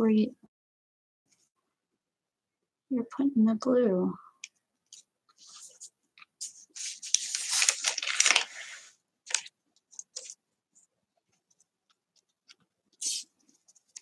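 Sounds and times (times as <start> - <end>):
paper and yarn rustling: 4.9 - 14.0.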